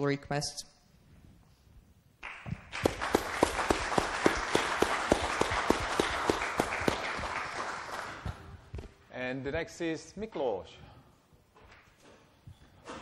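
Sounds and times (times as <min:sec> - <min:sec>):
audience applauding: 0:02.2 - 0:08.4
nearby hands clapping: 0:02.2 - 0:08.4.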